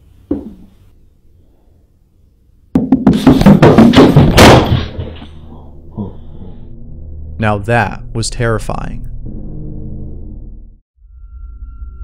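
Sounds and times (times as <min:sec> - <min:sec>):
rapid heavy thumps and bangs: 0:02.8 - 0:05.2.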